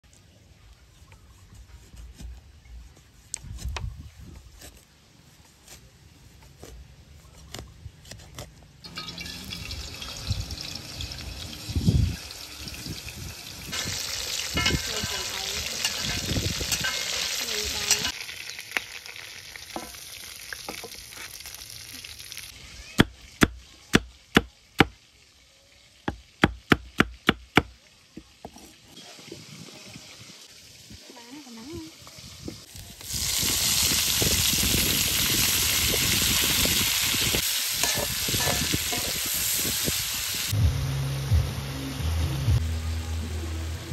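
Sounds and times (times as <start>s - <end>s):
food sizzling in hot oil: 8.8s - 24.0s, 24.6s - 40.6s.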